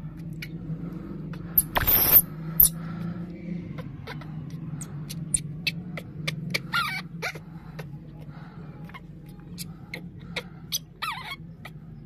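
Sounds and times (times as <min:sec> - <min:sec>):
steady low hum: 0:00.0 - 0:12.0
baby monkey screaming: 0:01.6 - 0:02.8, 0:05.3 - 0:07.4, 0:10.4 - 0:11.8.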